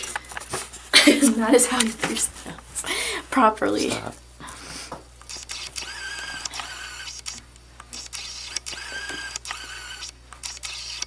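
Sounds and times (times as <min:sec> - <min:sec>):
autofocus motor whirring: 0:05.2 - 0:11.0.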